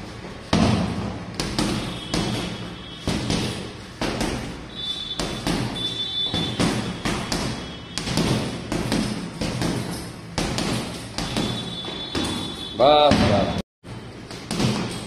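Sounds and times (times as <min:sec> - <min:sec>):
gloves punching heavy bag: 0:00.0 - 0:13.5, 0:14.3 - 0:15.0.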